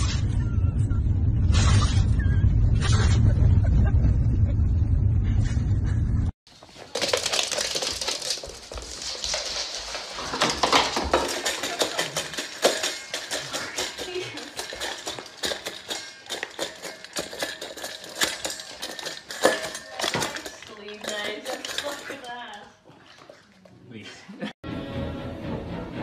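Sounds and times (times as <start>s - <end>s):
dog eating from metal bowl: 6.5s - 23.9s.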